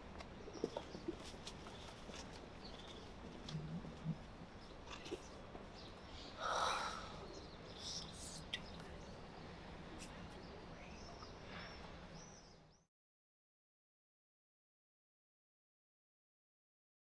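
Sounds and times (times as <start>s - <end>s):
small birds chirping: 0.3s - 12.9s
person sighing: 6.4s - 7.2s.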